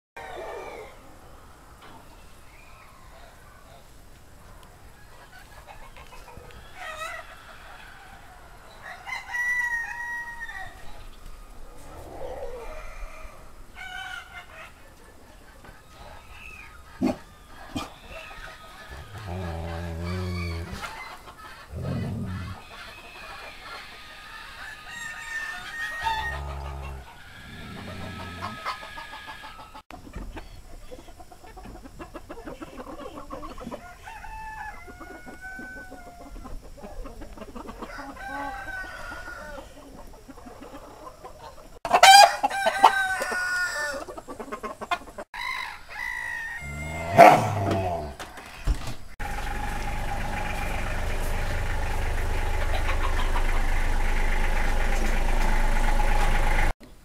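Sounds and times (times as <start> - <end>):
rooster crowing: 0.2 - 1.0, 6.5 - 11.0, 12.0 - 14.6, 17.3 - 29.8, 33.8 - 36.4, 37.8 - 39.8, 41.9 - 44.1, 45.4 - 56.7
chickens clucking: 0.2 - 9.4, 10.8 - 45.3, 46.6 - 56.8.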